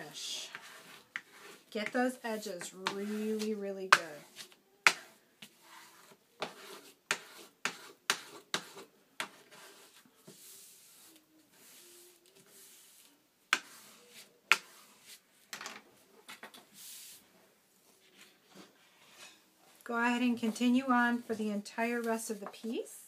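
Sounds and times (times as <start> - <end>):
bone folder scraping paper: 0.5 - 1.7, 2.3 - 15.2.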